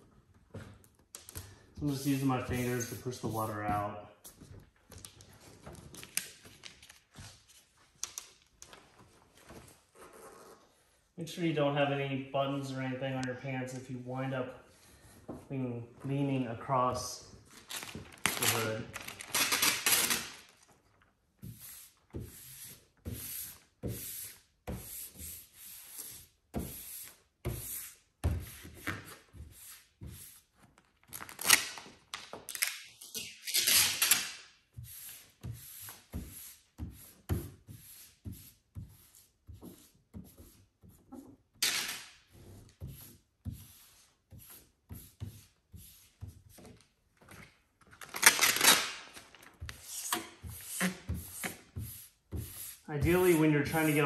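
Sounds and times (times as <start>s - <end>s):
hand rubbing vinyl sheet: 1.8s - 3.9s, 49.7s - 54.0s.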